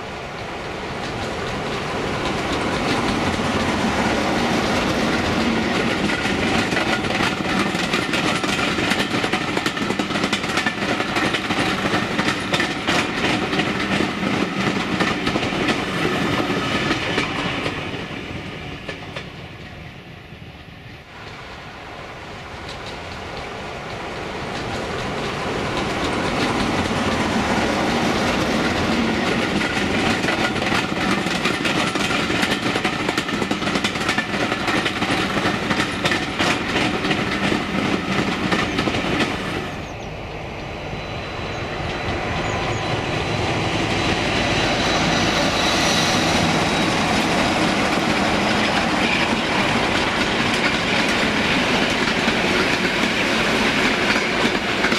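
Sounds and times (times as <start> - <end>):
diesel locomotive running: 0.0 - 20.2, 21.1 - 54.9
wheels clacking over rail joints: 1.0 - 19.4, 22.6 - 39.8, 41.8 - 54.9.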